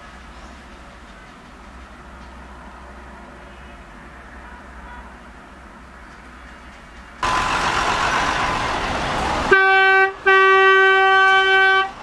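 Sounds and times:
street traffic noise: 0.0s - 12.0s
vehicle horn: 9.5s - 12.0s.

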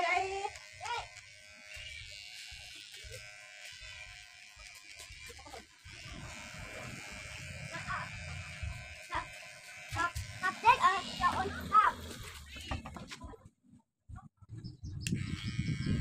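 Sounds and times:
small electric motor buzzing: 0.0s - 12.9s, 15.1s - 16.0s.

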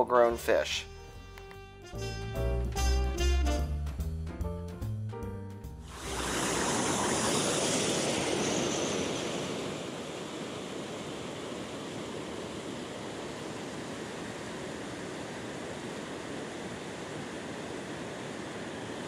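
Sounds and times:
jazz music: 0.0s - 6.3s.

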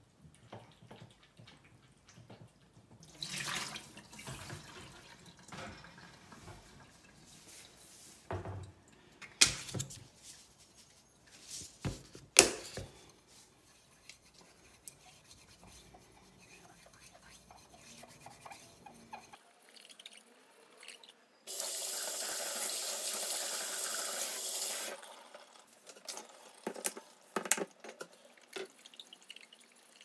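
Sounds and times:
tap water running and splashing: 0.3s - 8.6s, 21.5s - 30.0s.

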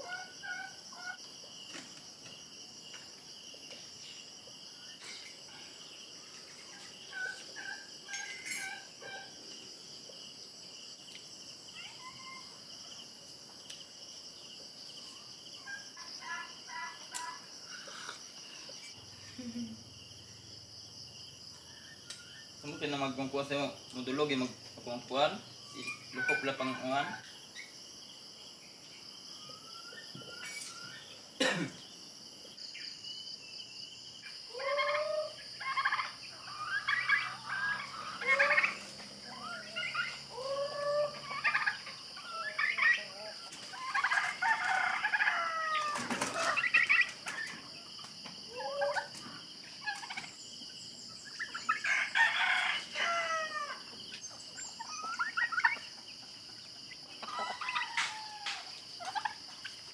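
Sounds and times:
high insect drone: 0.0s - 59.9s
chickens clucking: 6.2s - 9.6s, 25.7s - 27.4s, 34.5s - 50.7s, 51.3s - 59.9s.

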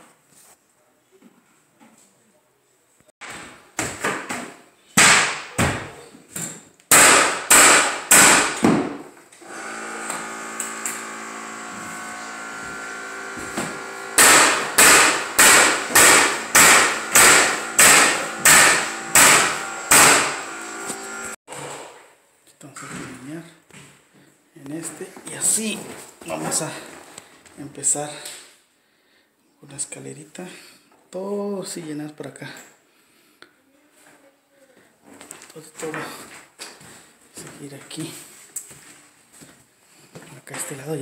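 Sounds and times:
mallet bangs on floor nailer: 6.9s - 21.3s
steady motor hum: 9.4s - 21.4s.

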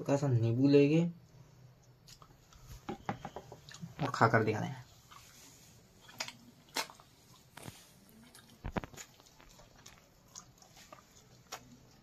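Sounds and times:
person chewing food: 1.7s - 4.1s, 4.9s - 12.0s.

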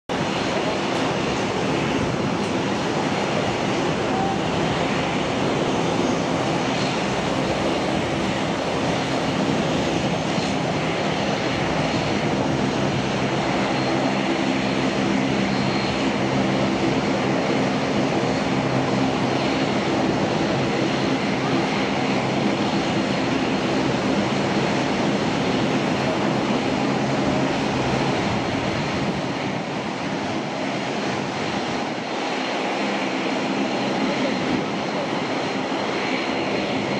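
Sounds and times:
jet airliner engine noise: 0.1s - 36.9s.

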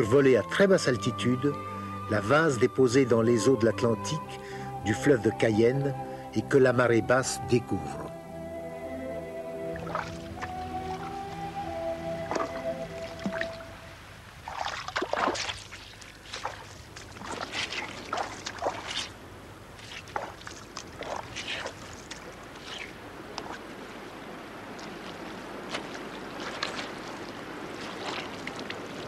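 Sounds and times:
boots squelching through mud and water: 9.7s - 13.7s, 14.4s - 29.0s.

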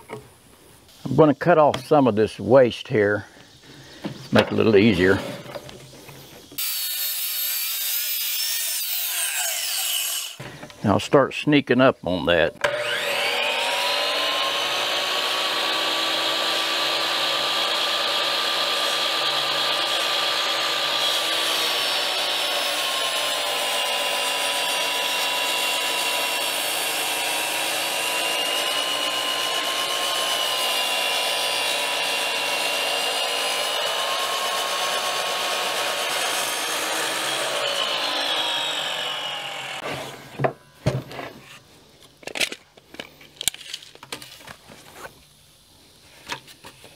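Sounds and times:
miter saw cutting timber: 6.5s - 10.4s, 12.6s - 40.4s.

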